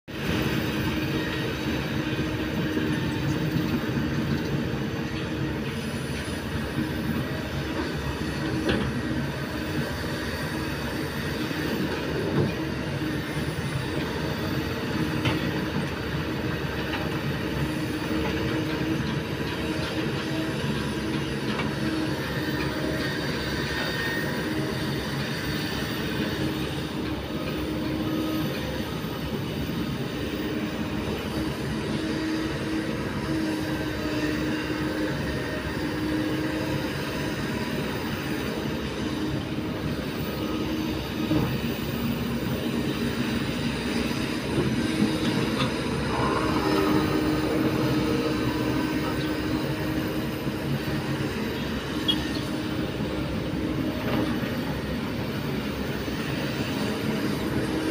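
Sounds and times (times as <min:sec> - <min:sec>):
excavator diesel engine drone: 0:00.1 - 0:57.9
hydraulic whine: 0:00.2 - 0:57.9.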